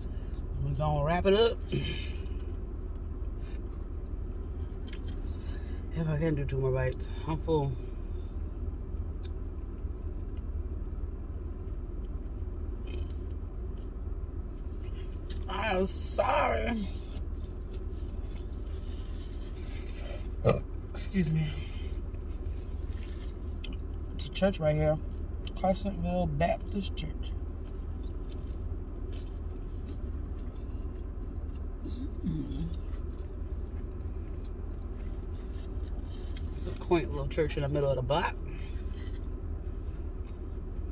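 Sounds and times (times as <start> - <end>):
low hummed sound: 0.0 - 40.9
low rumble inside car: 0.0 - 40.9
person chewing food: 1.6 - 5.4, 8.3 - 15.5, 17.0 - 20.9, 21.8 - 24.1, 27.5 - 36.6, 38.4 - 40.9.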